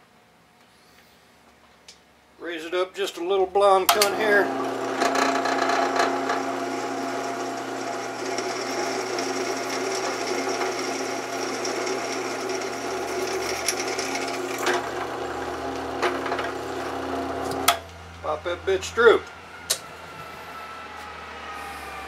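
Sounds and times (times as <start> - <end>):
drill bit boring through metal: 3.9 - 17.8
drill press humming: 3.9 - 18.2.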